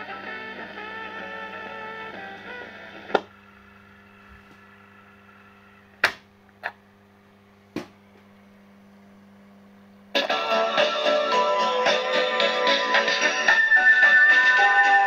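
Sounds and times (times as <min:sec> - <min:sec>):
music: 0:00.0 - 0:03.4, 0:10.1 - 0:15.0
low steady hum: 0:00.0 - 0:14.8.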